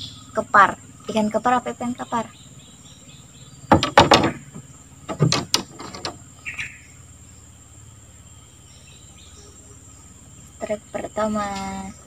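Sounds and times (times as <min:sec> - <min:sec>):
forest insects droning: 0:00.0 - 0:12.0
sharp knocks and clatters: 0:03.7 - 0:06.2.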